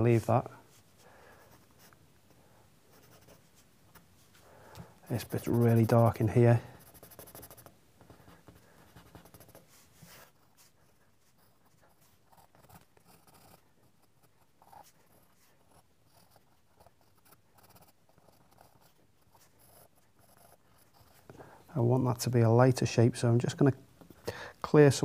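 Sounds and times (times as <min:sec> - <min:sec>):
pencil scratching on paper: 0:02.9 - 0:04.0, 0:05.0 - 0:21.3.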